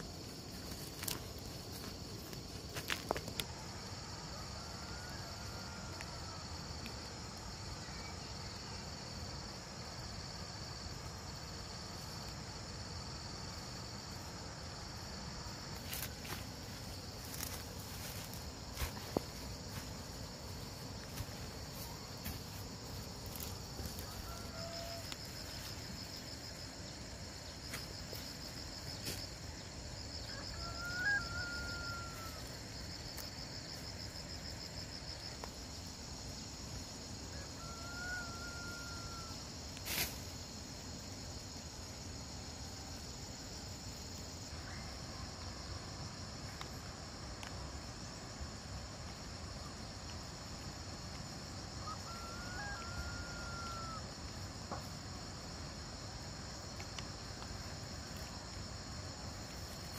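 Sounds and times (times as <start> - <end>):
insects droning: 0.0 - 59.9
rapid pulsed insect chirping: 0.0 - 59.9
rooster crowing: 4.3 - 6.5, 23.7 - 25.5, 30.2 - 32.6, 37.3 - 39.4, 51.8 - 54.2.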